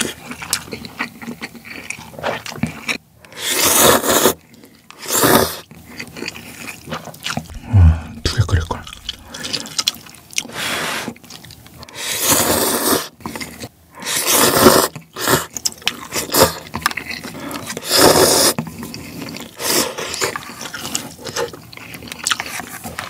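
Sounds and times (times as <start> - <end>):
chewing: 0.0 - 3.0, 5.6 - 7.6, 8.7 - 10.5, 13.1 - 13.7, 14.9 - 17.8, 18.6 - 23.0
person slurping noodles: 3.3 - 4.4, 5.0 - 5.6, 7.5 - 9.7, 17.6 - 18.6.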